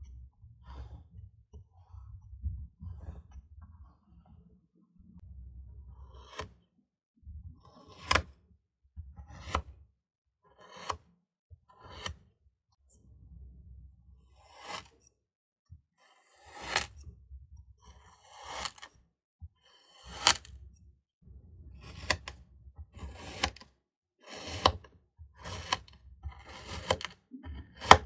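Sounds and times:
metal cutter grinding into sand: 24.2 - 24.8.

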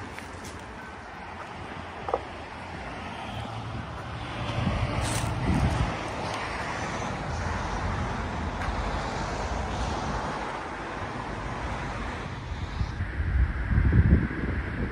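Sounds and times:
street traffic: 0.0 - 14.9
wind on microphone: 3.2 - 14.9.

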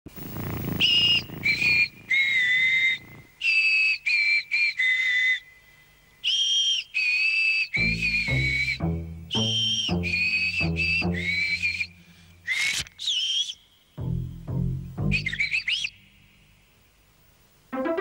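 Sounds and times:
person whistling a tune: 6.2 - 13.6, 15.0 - 15.9
deep music notes: 7.8 - 11.4, 14.0 - 15.4, 17.7 - 18.0.

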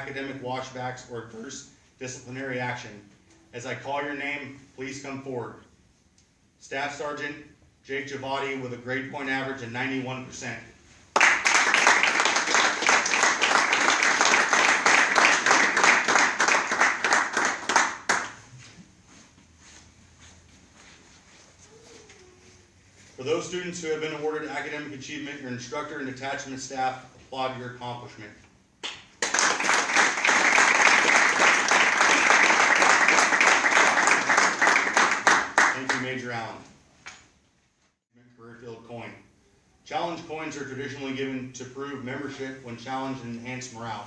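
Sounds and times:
audience applauding: 11.2 - 18.4, 29.2 - 35.9.

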